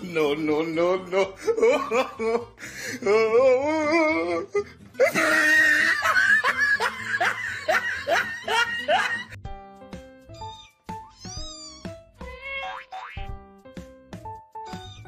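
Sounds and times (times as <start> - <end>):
music: 0.0 - 15.0
person laughing hard: 1.2 - 9.4.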